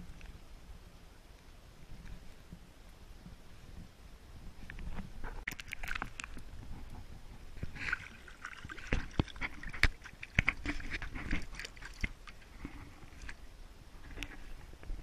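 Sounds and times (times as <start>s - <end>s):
water splashing and sloshing: 4.6s - 15.0s.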